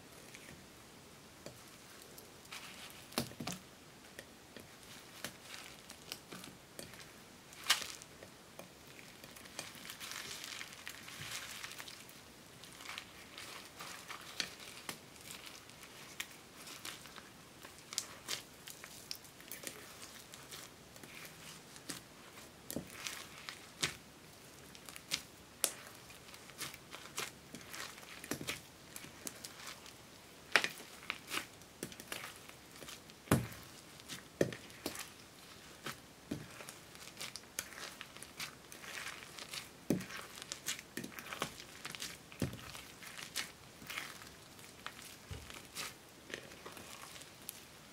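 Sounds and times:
slime crackling and popping: 0:04.7 - 0:47.9.

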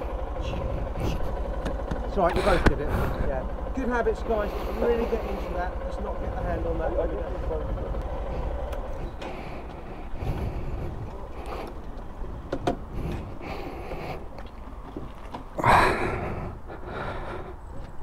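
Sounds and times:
motorcycle engine rumbling: 0:00.0 - 0:18.0.

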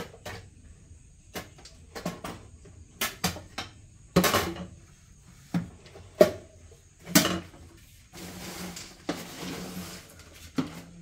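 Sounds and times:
wooden spatula scraping a pot: 0:07.8 - 0:11.0.

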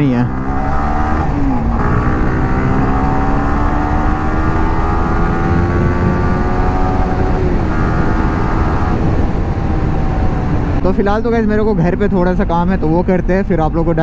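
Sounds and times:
motorcycle engine accelerating: 0:00.0 - 0:10.9
low wind noise: 0:00.0 - 0:14.0.

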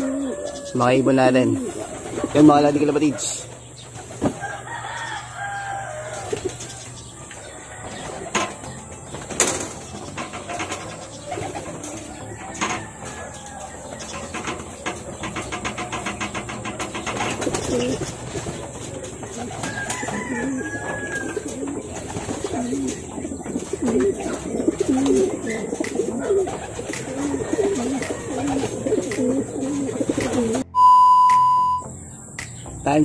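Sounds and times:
pigeons cooing: 0:00.0 - 0:30.7
electronic test tone: 0:30.6 - 0:31.9.

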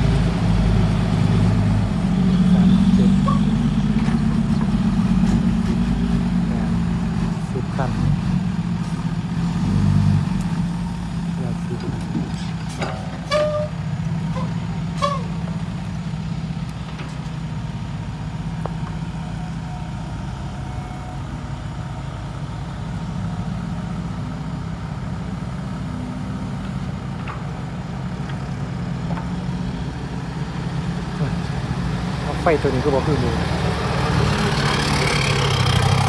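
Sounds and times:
heavy diesel engines running: 0:00.0 - 0:36.0.

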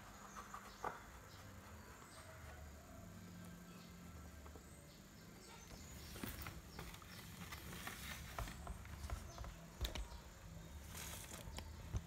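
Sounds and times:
plastic parts handled: 0:10.8 - 0:12.0.

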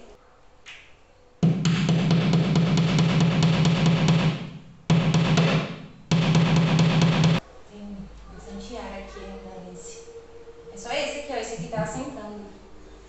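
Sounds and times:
music with drum beat and bass: 0:01.4 - 0:07.4.

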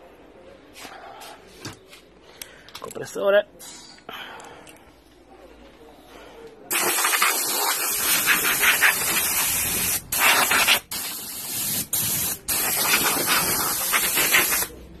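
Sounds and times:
compressed air blow gun hissing: 0:06.7 - 0:14.7.

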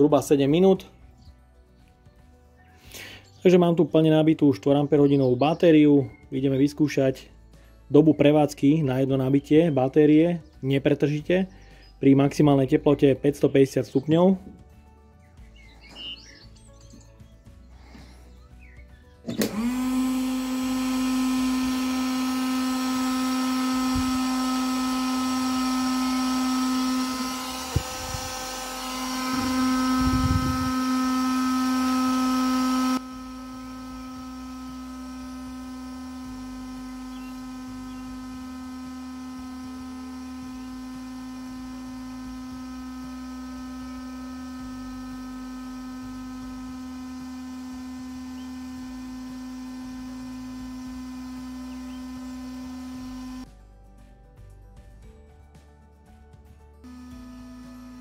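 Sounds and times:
heat gun fan humming: 0:15.5 - 0:53.5, 0:56.8 - 0:58.0.

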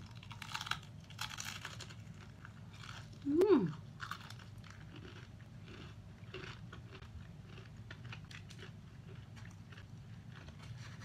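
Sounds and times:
chewing crispy fried chicken: 0:00.0 - 0:11.0
steady low hum: 0:00.0 - 0:11.0.

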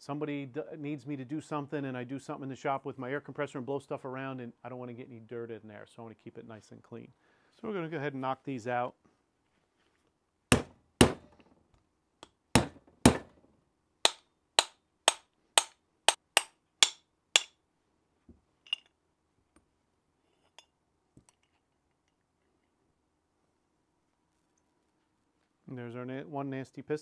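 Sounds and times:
hammer tapping metal pin: 0:14.0 - 0:17.6.

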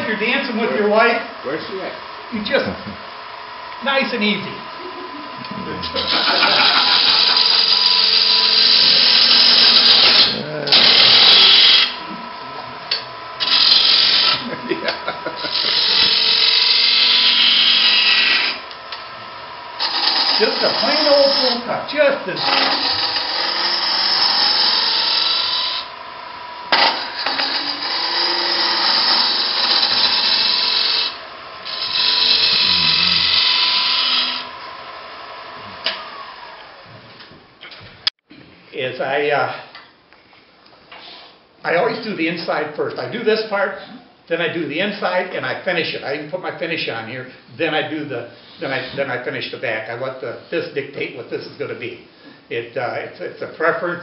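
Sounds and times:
lathe gouge cutting wood hiss: 0:04.7 - 0:12.0, 0:13.4 - 0:18.7, 0:19.5 - 0:26.0, 0:26.7 - 0:36.6.

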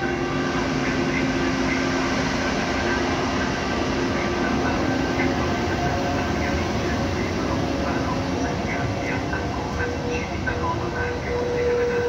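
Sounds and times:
train rolling rumble: 0:00.0 - 0:12.0.

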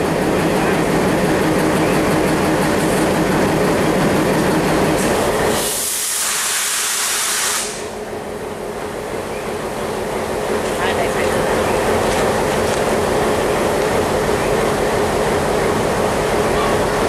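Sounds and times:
diesel locomotive engine drone: 0:00.0 - 0:17.0
loud air hiss: 0:05.0 - 0:08.0.

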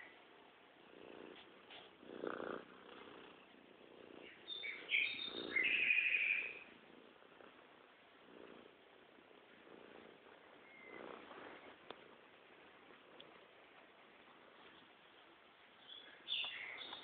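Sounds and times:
animal breathy rumbling: 0:00.8 - 0:06.0
high chirping calls: 0:04.2 - 0:06.6, 0:15.8 - 0:17.0.

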